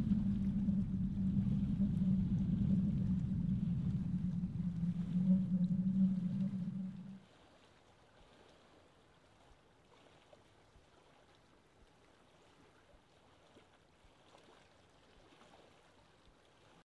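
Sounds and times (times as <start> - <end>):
faint steady hiss: 0.0 - 7.2.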